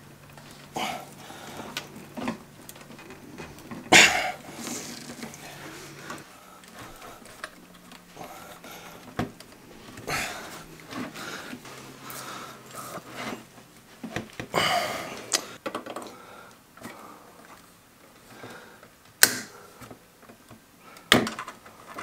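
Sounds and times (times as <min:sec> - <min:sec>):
plastic and metal parts clicking: 0:19.1 - 0:22.0.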